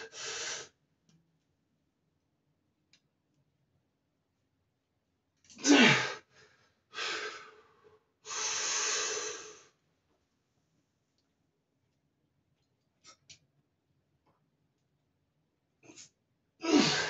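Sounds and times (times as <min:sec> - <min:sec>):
man's strained vocal exhale: 0:05.6 - 0:06.2, 0:16.6 - 0:17.0.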